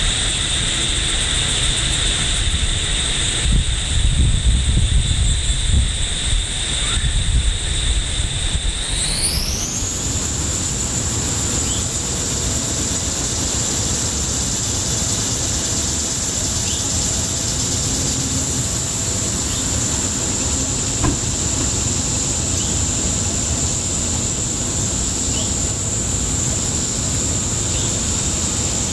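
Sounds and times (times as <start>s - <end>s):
high-pitched insect drone: 0.0s - 28.9s
low background rumble: 9.8s - 28.9s
sharp knock: 21.0s - 21.8s.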